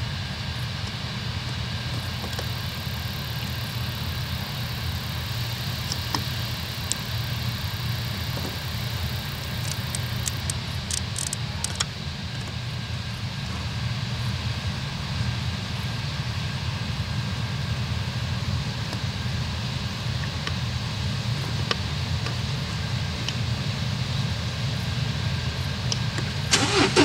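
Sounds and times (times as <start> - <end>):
combine harvester running: 0.0 - 27.0.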